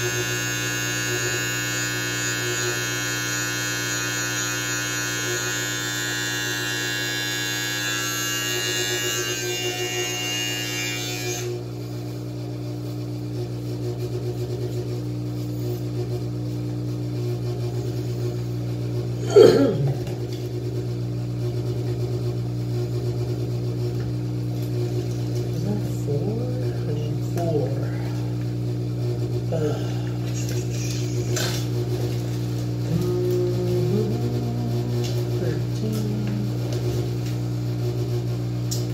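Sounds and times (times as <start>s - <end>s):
electric beard trimmer buzzing: 0.0s - 11.6s, 29.5s - 37.4s.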